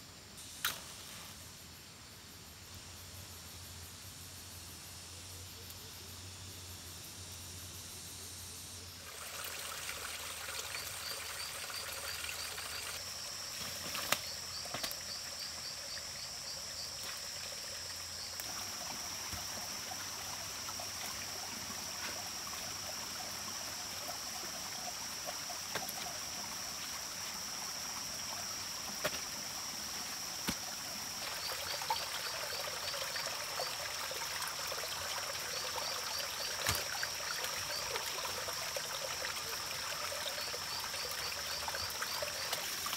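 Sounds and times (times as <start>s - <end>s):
stream trickling over rocks: 9.0s - 42.9s.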